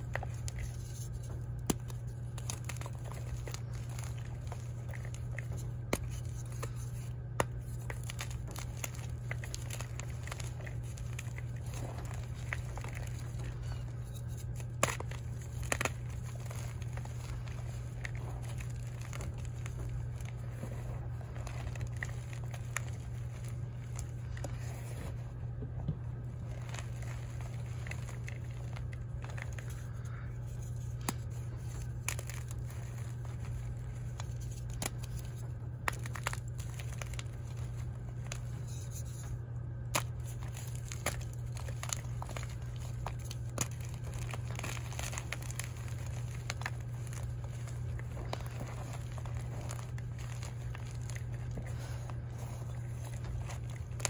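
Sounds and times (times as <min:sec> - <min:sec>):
chalk crunching and crumbling: 0:00.0 - 0:54.0
steady low hum: 0:00.0 - 0:54.0.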